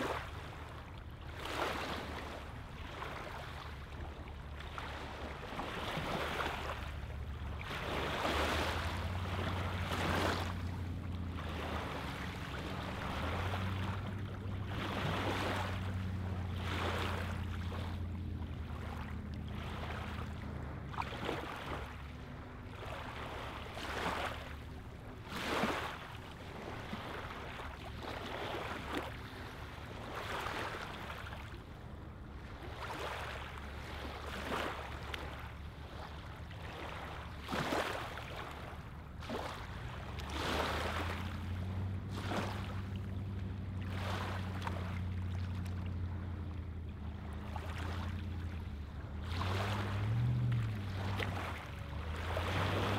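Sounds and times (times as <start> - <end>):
lake waves lapping on shore: 0.0 - 52.9
low steady hum: 0.0 - 52.9.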